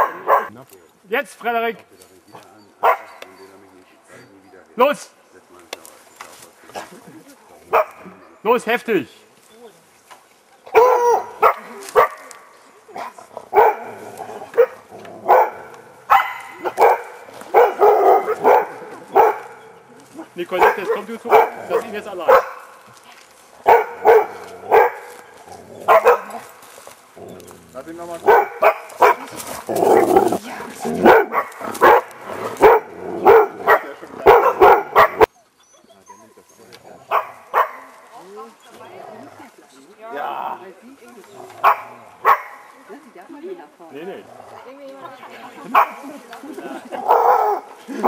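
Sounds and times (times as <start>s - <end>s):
dog barking: 0.0s - 0.5s, 2.8s - 3.4s, 7.7s - 8.2s, 10.7s - 19.8s, 20.5s - 22.8s, 23.6s - 25.2s, 25.8s - 26.5s, 28.2s - 29.3s, 31.0s - 35.3s, 37.1s - 38.1s, 41.6s - 42.8s, 45.7s - 46.1s, 47.0s - 47.8s.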